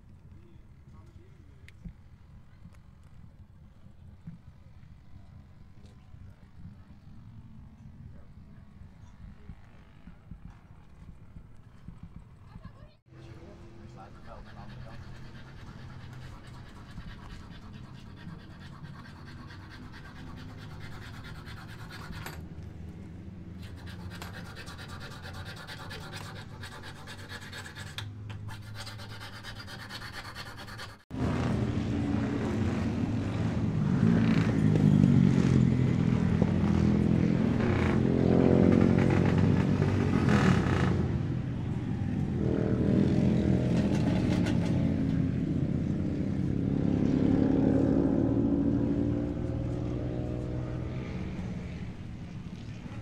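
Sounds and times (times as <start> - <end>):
two-stroke motorcycle engine revving: 31.1 - 52.1.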